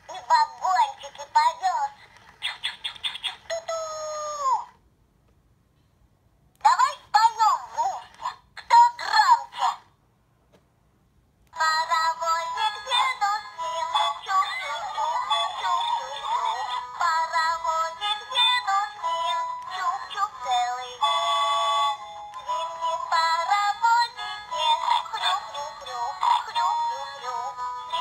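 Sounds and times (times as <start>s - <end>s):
toy speaker playing girl singing: 0.0s - 4.7s, 7.1s - 9.8s, 11.6s - 28.0s.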